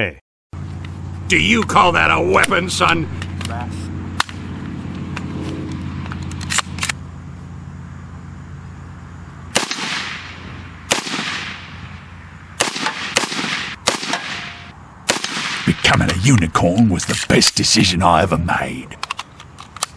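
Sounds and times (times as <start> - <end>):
rifle loading clacks: 6.0 - 7.0, 19.0 - 19.9
rifle shots echoing: 9.5 - 12.0, 12.6 - 16.0.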